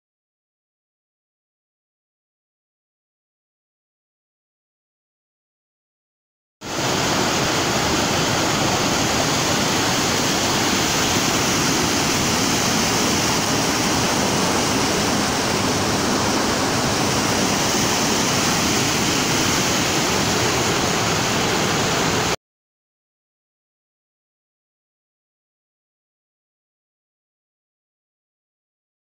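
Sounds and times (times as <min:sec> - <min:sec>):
river rushing over rocks: 0:06.7 - 0:22.4.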